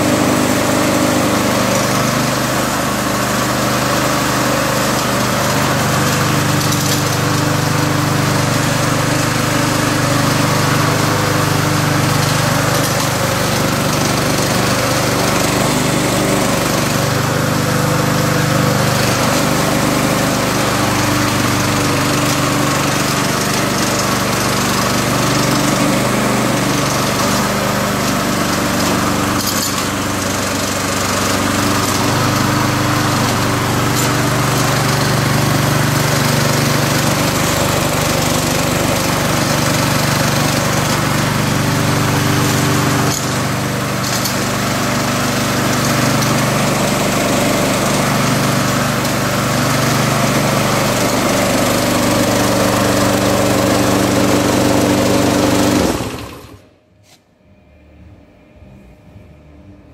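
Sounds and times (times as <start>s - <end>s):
lawn mower engine running: 0.0s - 56.8s.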